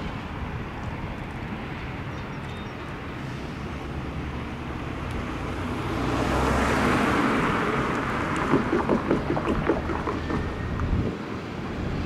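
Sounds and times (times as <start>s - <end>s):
train rushing rumble: 2.9s - 12.0s.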